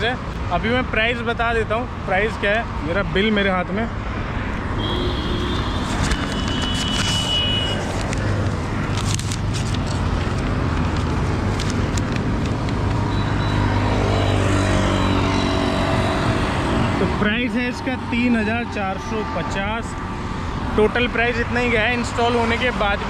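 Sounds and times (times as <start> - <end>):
road traffic rushing past: 0.0 - 23.0.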